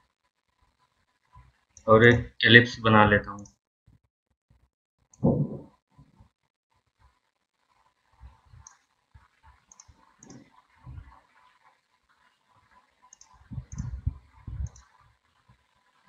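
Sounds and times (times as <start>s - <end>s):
dull low thumps: 5.2s - 5.6s, 13.4s - 14.8s
computer mouse clicks: 8.6s - 8.9s, 9.7s - 10.6s, 13.0s - 15.0s.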